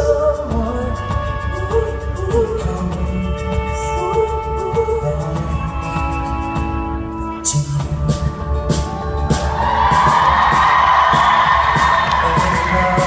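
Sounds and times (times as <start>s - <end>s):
steady bass: 0.0s - 13.0s
cello and keyboard notes: 0.9s - 9.3s
audience cheering and whooping: 8.9s - 13.0s.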